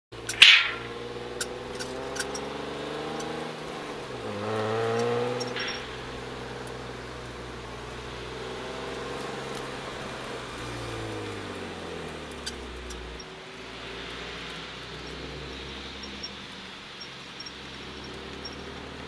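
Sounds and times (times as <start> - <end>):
car engine pulling away: 0.1 - 19.0
faint clicks: 4.8 - 7.4, 8.9 - 11.4.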